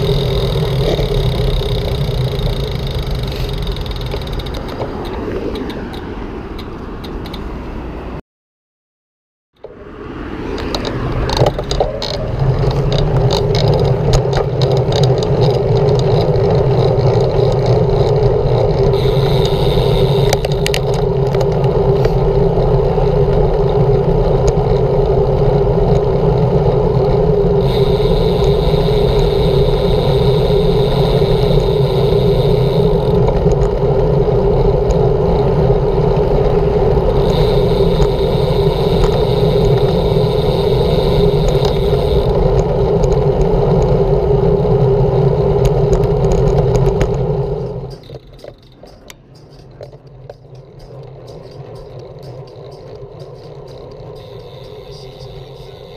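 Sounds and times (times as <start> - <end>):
wind rushing: 0.0 - 7.0
passing traffic hiss: 0.0 - 8.2, 18.9 - 23.0, 27.4 - 44.4, 50.7 - 55.9
road noise: 0.0 - 8.2, 9.5 - 55.9.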